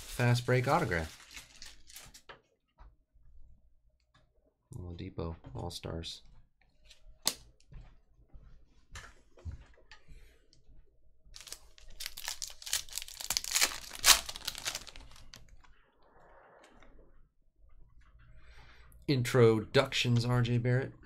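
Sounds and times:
foil wrapper tearing and crinkling: 0:00.0 - 0:02.2, 0:11.4 - 0:15.4.

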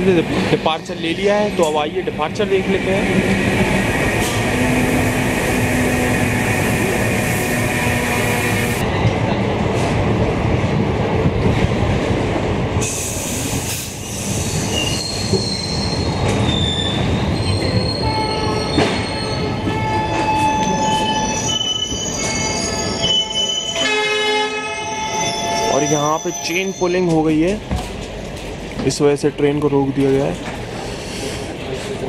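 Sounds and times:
train coaches rolling: 0:00.0 - 0:32.0
train brake squeal: 0:12.8 - 0:24.0.

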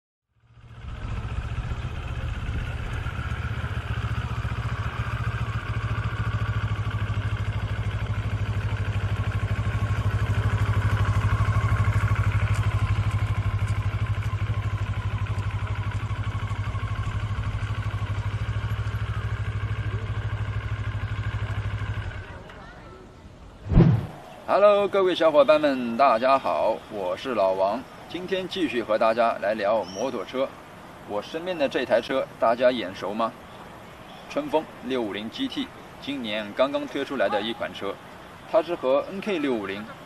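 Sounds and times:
motorcycle engine passing by: 0:00.4 - 0:22.4, 0:23.6 - 0:24.8.

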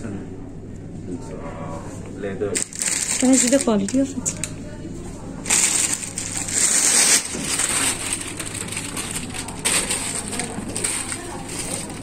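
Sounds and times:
plastic wrapping crinkling: 0:02.6 - 0:12.0.

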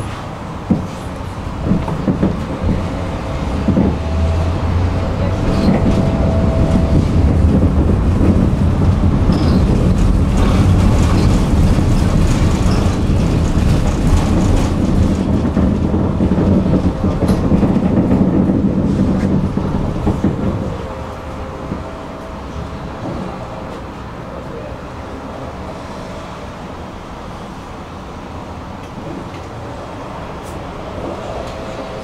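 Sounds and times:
tram wheels rumbling on rails: 0:00.0 - 0:32.0
wheel clicks on rail: 0:05.4 - 0:20.8.

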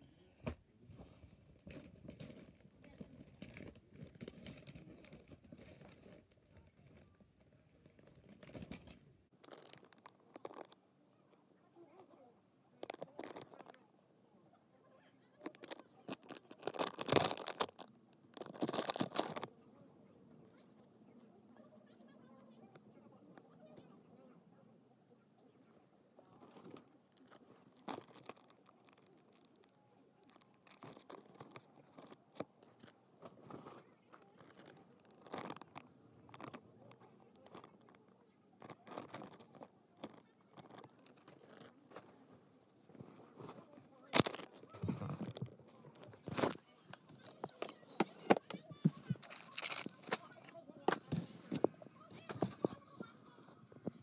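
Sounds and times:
rustling of small items: 0:00.8 - 0:12.2, 0:12.8 - 0:14.0, 0:15.2 - 0:19.6, 0:26.1 - 0:54.0
plastic packaging crinkling: 0:08.0 - 0:10.8, 0:12.8 - 0:13.8, 0:15.4 - 0:19.5, 0:26.5 - 0:38.0, 0:38.6 - 0:42.2, 0:42.9 - 0:52.7.

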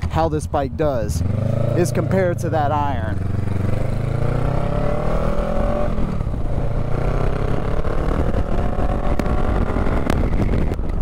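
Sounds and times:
motorcycle engine accelerating: 0:01.0 - 0:11.0
wind noise: 0:03.2 - 0:11.0.

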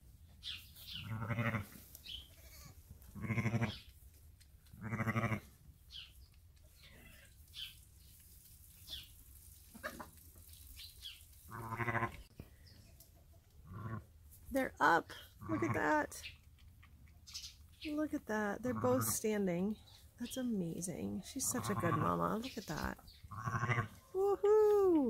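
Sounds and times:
sheep bleating low: 0:03.2 - 0:03.8, 0:04.8 - 0:05.4.

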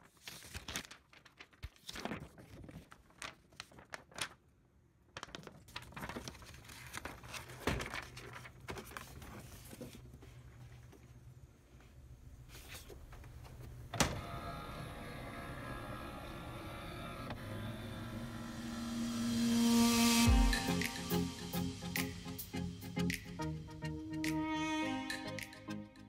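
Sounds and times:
paper rustling and sliding: 0:00.0 - 0:04.4, 0:05.2 - 0:11.2, 0:11.9 - 0:13.8.

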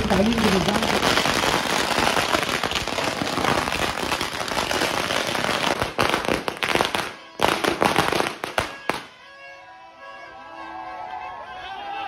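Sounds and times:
firecrackers banging: 0:00.0 - 0:09.2.

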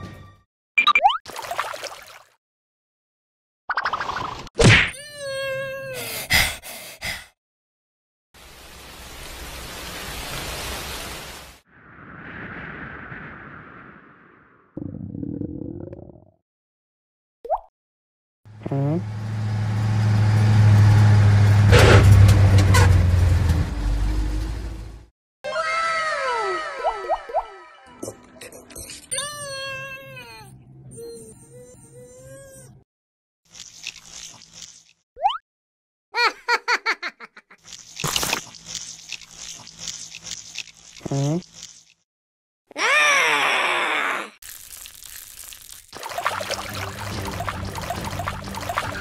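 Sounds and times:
truck engine hum: 0:18.5 - 0:25.1
cookie crunching: 0:44.4 - 0:45.9.

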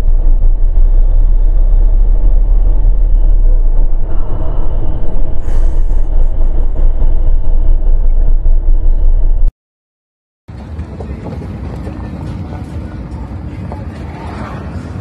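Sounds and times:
car interior rumble: 0:00.0 - 0:09.5.

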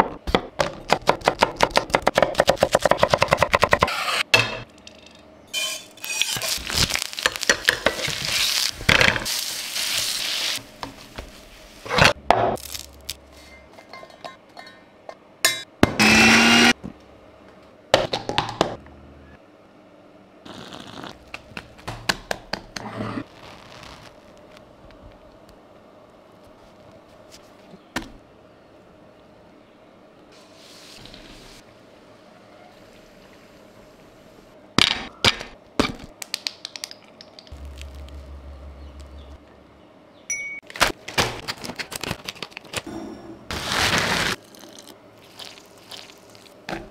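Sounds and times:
crisp crust crackling: 0:06.0 - 0:08.9, 0:12.6 - 0:13.3, 0:23.2 - 0:25.6, 0:37.5 - 0:39.3
mixer grinder motor running: 0:16.0 - 0:16.7.

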